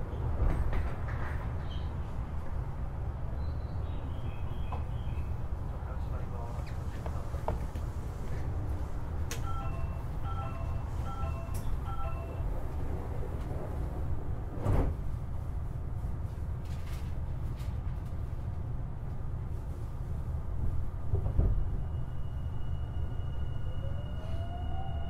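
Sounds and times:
low rumble of stopped train: 0:00.0 - 0:25.0
two-tone door chime: 0:09.4 - 0:12.5.

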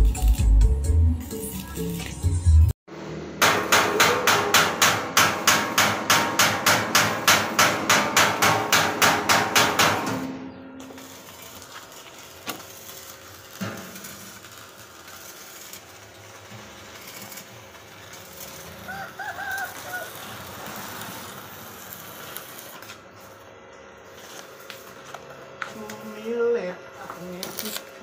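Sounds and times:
low workshop background: 0:00.0 - 0:28.0
hammer blows on steel: 0:03.4 - 0:10.9.

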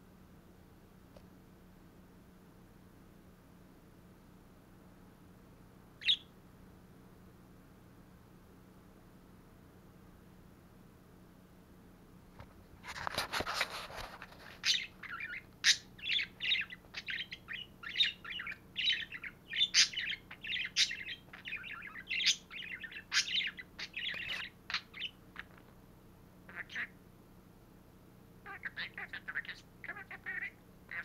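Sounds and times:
budgerigar chattering: 0:06.0 - 0:06.3, 0:14.6 - 0:25.6, 0:26.5 - 0:27.0, 0:28.5 - 0:31.0.

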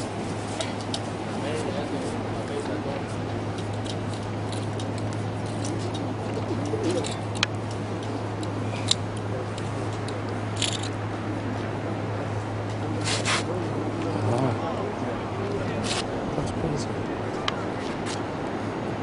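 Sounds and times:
low background hum: 0:00.0 - 0:19.0
pigeons cooing: 0:04.6 - 0:10.5.

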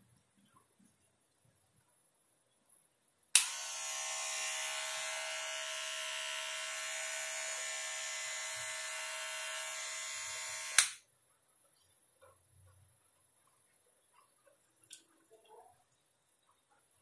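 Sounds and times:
trimmer switch click: 0:03.4 - 0:04.0, 0:09.7 - 0:11.0
hair trimmer buzzing: 0:03.4 - 0:11.0.

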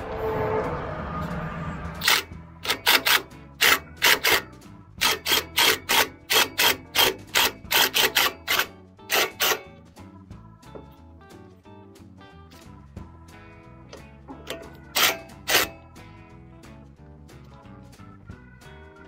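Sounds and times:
impact wrench bursts: 0:02.0 - 0:09.7, 0:14.5 - 0:15.8.

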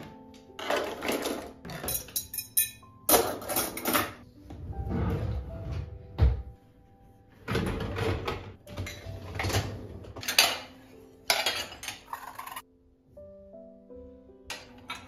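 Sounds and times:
glasses and dishes clinking: 0:00.6 - 0:04.2, 0:10.2 - 0:12.6
dishwasher rack sliding: 0:03.2 - 0:06.4, 0:07.5 - 0:12.6.

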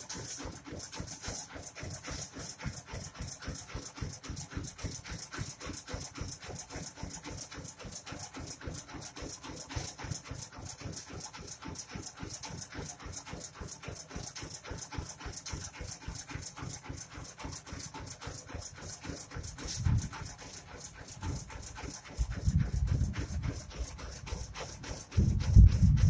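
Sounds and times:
diesel engine chugging: 0:14.8 - 0:26.0.

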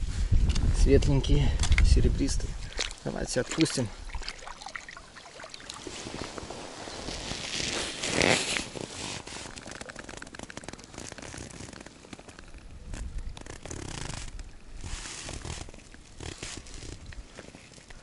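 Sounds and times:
water sloshing: 0:02.4 - 0:12.7
water splashing: 0:02.5 - 0:11.3
jacket sleeve rustling: 0:05.8 - 0:09.6.

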